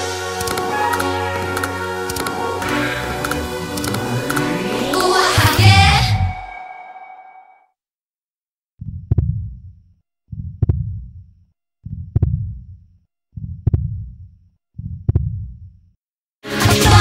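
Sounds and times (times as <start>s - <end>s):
heartbeat thuds: 8.8s - 9.7s, 10.3s - 15.8s.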